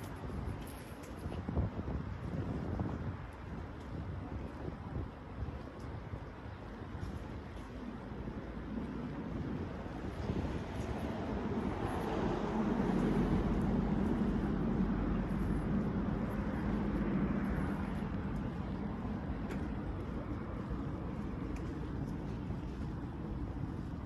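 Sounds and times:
passing vehicle rumble: 0:07.9 - 0:24.0.

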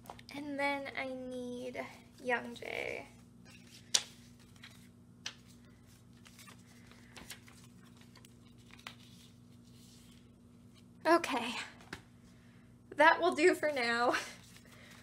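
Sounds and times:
steady low hum: 0:00.0 - 0:15.0
plastic sleeves rustling: 0:03.5 - 0:10.9, 0:13.4 - 0:15.0.

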